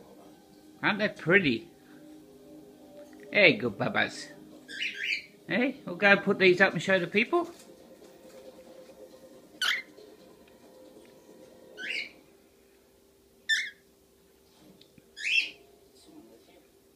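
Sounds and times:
cockatiels chirping: 4.7s - 5.4s, 9.6s - 9.9s, 11.8s - 12.2s, 13.5s - 13.8s, 15.2s - 15.6s.

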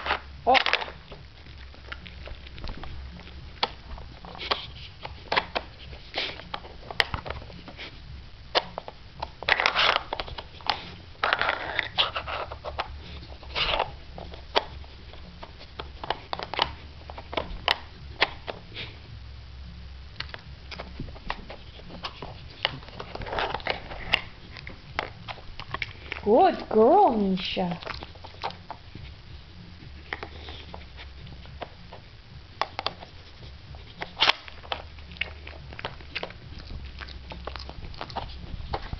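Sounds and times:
plastic puzzle clicks and scrapes: 0.0s - 1.2s, 3.6s - 7.9s, 8.5s - 18.9s, 20.3s - 26.2s
dog sniffing: 1.0s - 19.2s, 20.7s - 38.9s.

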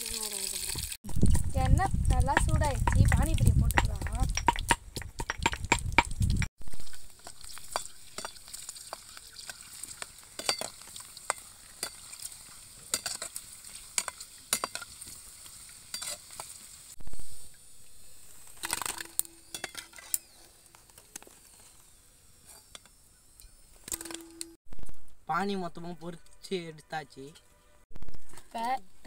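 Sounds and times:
oil sizzling: 0.0s - 20.3s
ladle clinking and scraping pan: 7.2s - 9.7s, 10.4s - 12.2s, 12.9s - 15.1s, 15.9s - 16.5s, 18.6s - 20.3s.

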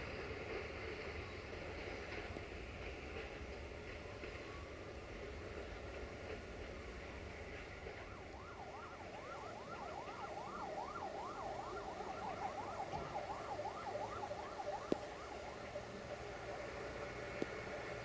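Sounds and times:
siren yelping: 7.9s - 15.8s.

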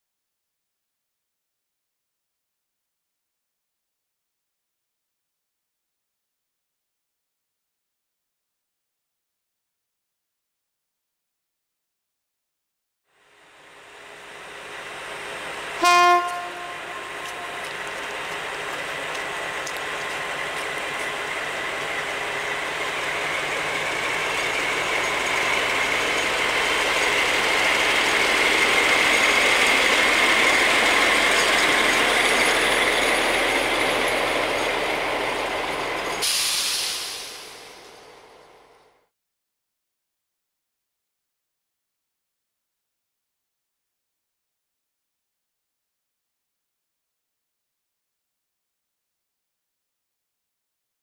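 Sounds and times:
diesel locomotive engine: 13.1s - 39.1s
train wheels on rails: 13.2s - 39.0s
locomotive horn blast: 15.8s - 17.7s
air hiss: 36.2s - 37.8s.

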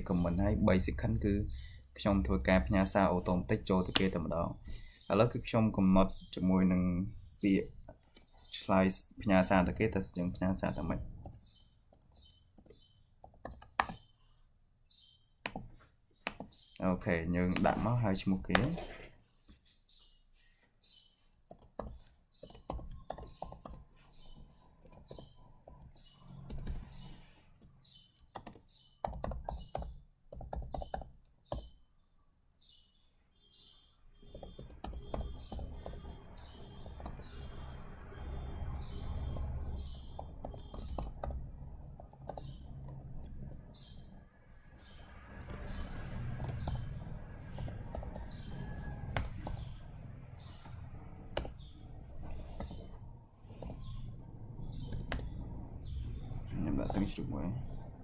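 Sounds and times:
high chirping: 20.8s - 31.8s, 32.7s - 58.0s.

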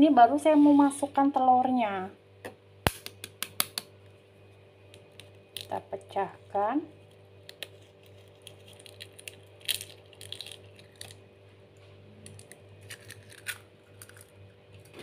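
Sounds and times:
faint steady hum: 0.0s - 15.0s
eggshell cracking: 4.9s - 5.8s, 7.4s - 11.3s, 12.2s - 15.0s.

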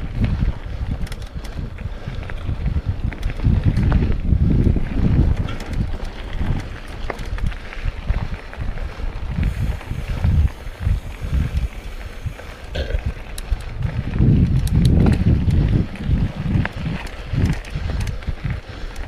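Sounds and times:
mountain bike rumble: 0.0s - 19.0s
wind buffeting microphone: 0.0s - 19.0s
sharp clicks and rattles: 0.8s - 7.6s, 9.4s - 19.0s.

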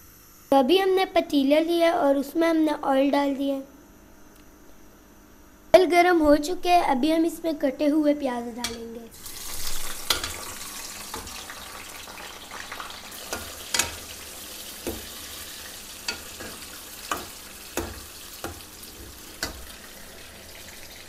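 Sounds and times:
onions sizzling in hot oil: 9.1s - 21.0s
steel spoon knocking against pan: 13.3s - 14.1s, 14.8s - 15.2s, 16.0s - 18.7s.

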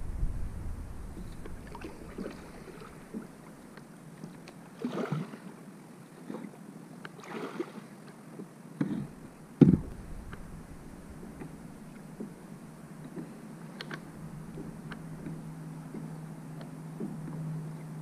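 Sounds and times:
low rumble: 0.0s - 3.6s, 9.7s - 12.8s
paddle splashing in water: 1.1s - 5.5s, 7.2s - 8.2s.

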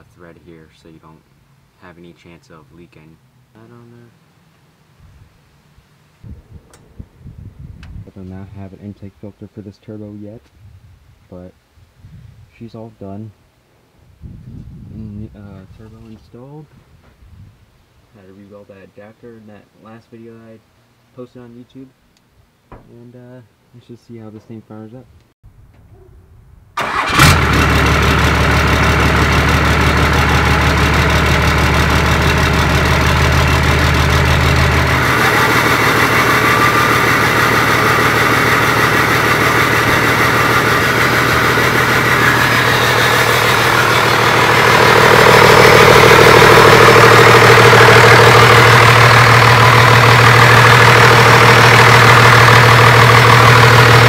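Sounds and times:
diesel engine starting and running: 26.8s - 54.0s.

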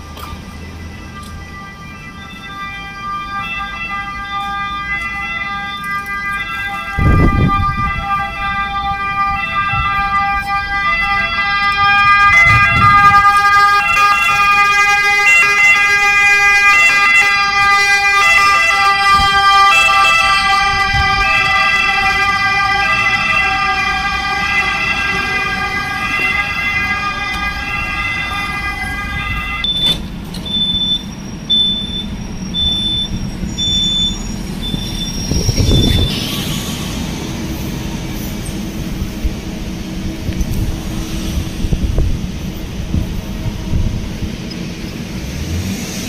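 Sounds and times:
ambulance siren: 0.0s - 46.0s.

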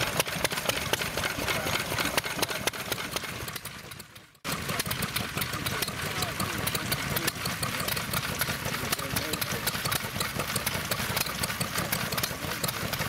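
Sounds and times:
small stationary engines clicking: 0.0s - 13.0s.

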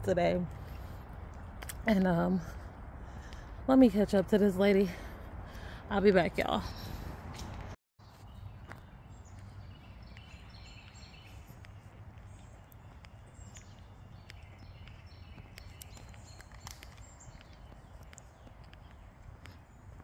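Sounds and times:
birds chirping: 0.2s - 20.0s
footsteps on a trail: 0.4s - 20.0s.

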